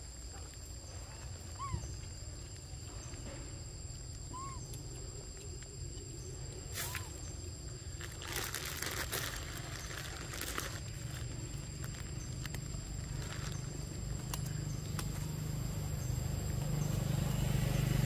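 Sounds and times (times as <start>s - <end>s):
high insect drone: 0.0s - 18.0s
whistled animal calls: 1.5s - 2.0s, 4.3s - 4.8s
rustling: 6.6s - 15.3s.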